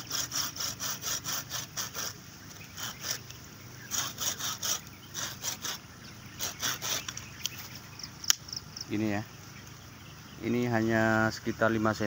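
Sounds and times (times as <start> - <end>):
pruning saw cutting wood: 0.0 - 7.8.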